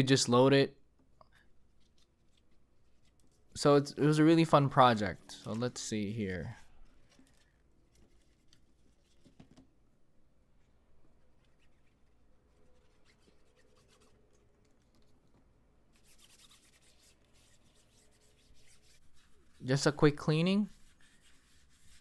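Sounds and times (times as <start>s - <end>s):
cloth rubbing plastic: 4.6s - 9.8s, 10.5s - 22.0s.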